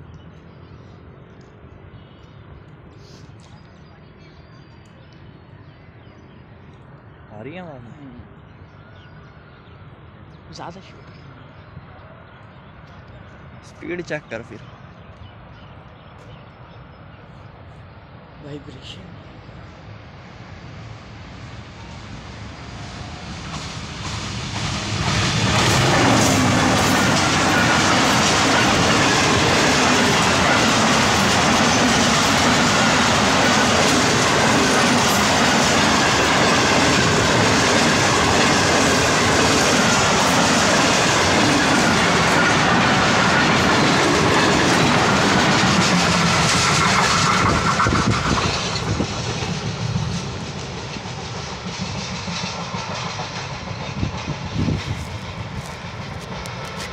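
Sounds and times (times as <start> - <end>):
locomotive passing: 16.6 - 56.9
coaches clattering over rails: 23.1 - 56.9.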